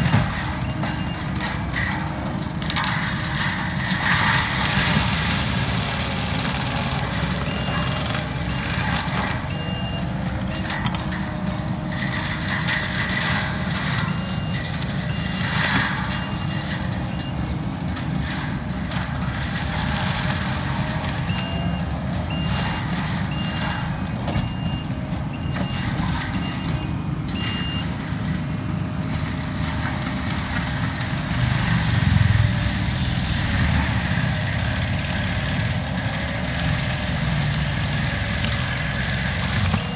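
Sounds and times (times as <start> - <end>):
diesel engine under load: 0.0 - 39.9
mulcher head working: 0.0 - 39.9
back-up alarm beeping: 7.0 - 11.0, 21.2 - 27.9.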